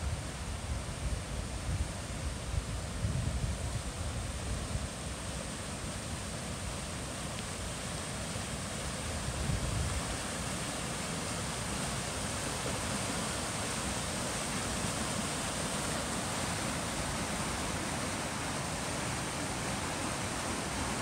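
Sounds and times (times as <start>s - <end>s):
floodwater rushing over rocks: 8.1s - 21.0s.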